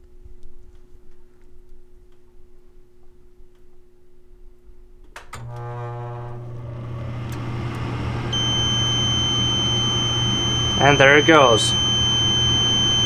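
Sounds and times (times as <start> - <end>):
inducer motor humming: 5.4 - 13.0
multimeter continuity beep: 8.4 - 13.0.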